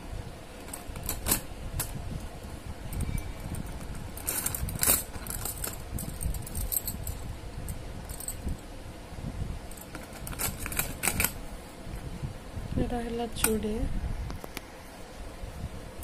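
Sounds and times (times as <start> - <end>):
bangles clinking and jangling: 2.9 - 8.6.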